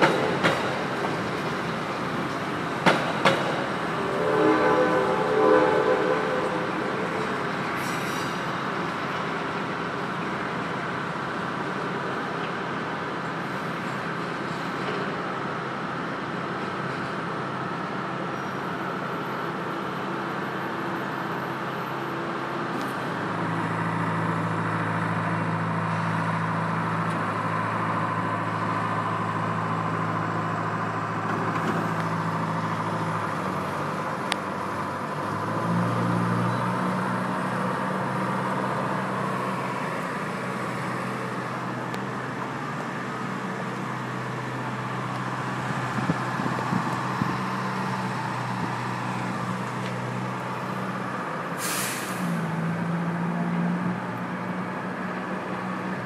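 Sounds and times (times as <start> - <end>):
city background noise: 0.0 - 56.0
machine engine hum: 1.9 - 8.4
brief hiss: 51.6 - 52.4.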